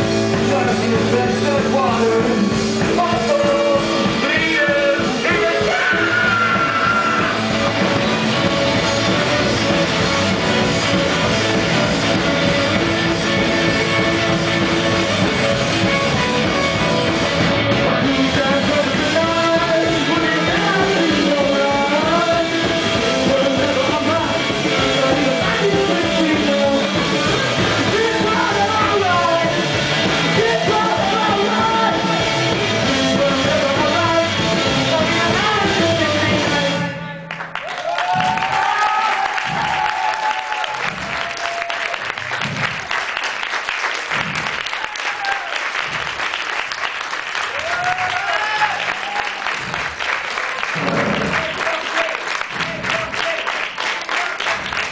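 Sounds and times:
live rock band playing: 0.0 - 37.2.

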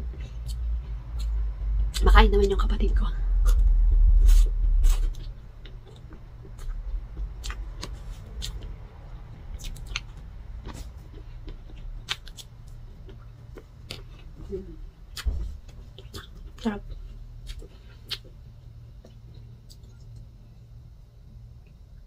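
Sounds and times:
low steady hum: 0.0 - 22.0
mouth clicks and smacks chewing: 9.6 - 12.5.

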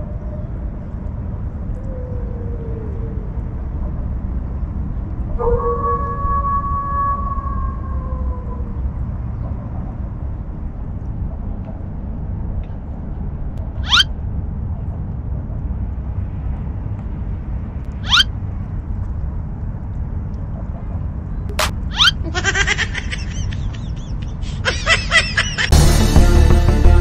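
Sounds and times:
wind rumble on microphone: 0.0 - 21.6
high upward chirps: 13.8 - 14.1, 18.0 - 18.3, 21.5 - 22.2.

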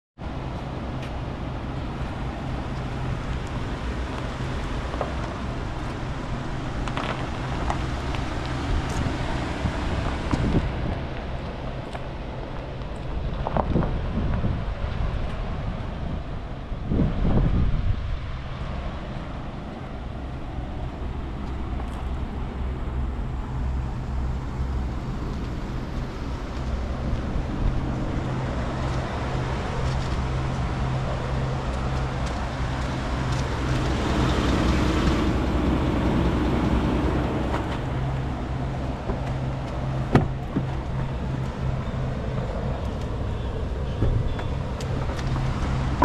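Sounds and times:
engine idling: 18.5 - 46.0.

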